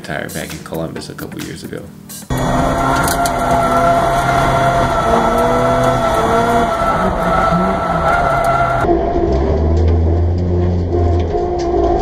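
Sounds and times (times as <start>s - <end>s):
rotary engine running: 2.3s - 11.8s.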